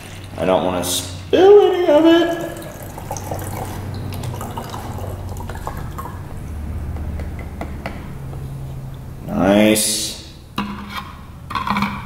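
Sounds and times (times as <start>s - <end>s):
low steady hum: 0.0s - 12.0s
water trickling into bottle: 2.3s - 6.3s.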